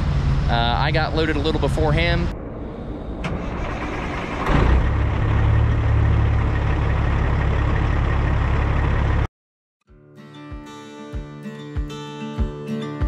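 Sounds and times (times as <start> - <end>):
diesel truck engine rumbling: 0.0 - 9.3.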